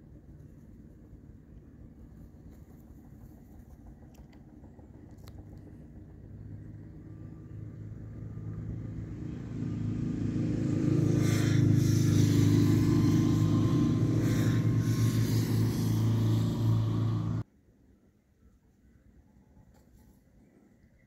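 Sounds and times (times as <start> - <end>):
motor engine running: 0.8 - 17.4.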